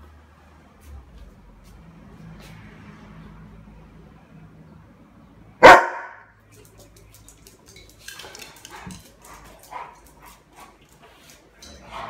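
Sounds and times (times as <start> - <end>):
dog barking loudly: 5.6 - 6.3
dog claws clicking on tile: 6.5 - 12.0.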